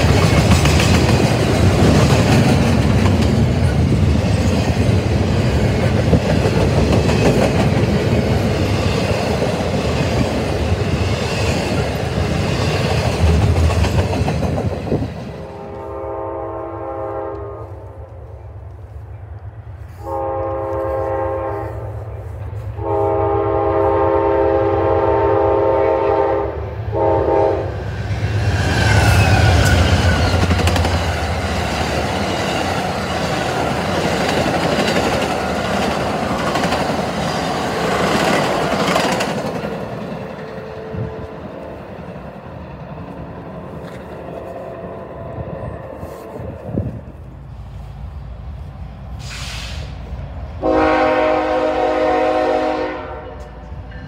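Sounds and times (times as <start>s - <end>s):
freight train rolling: 0.0s - 54.0s
locomotive horn blasts: 15.4s - 18.2s, 19.9s - 22.0s, 22.7s - 27.8s, 50.6s - 53.7s.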